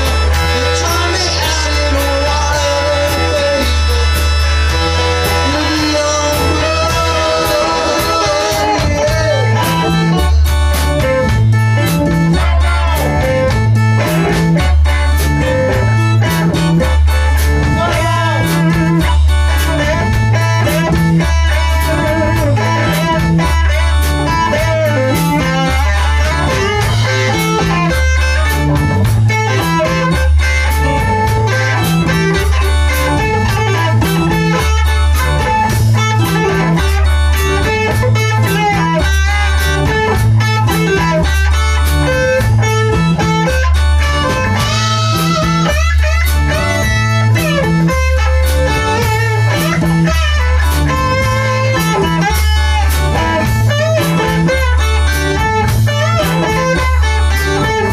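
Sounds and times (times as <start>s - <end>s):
electric guitar: 0.0s - 57.9s
repeating bass line: 0.0s - 57.9s
steady drum beat: 0.0s - 57.9s.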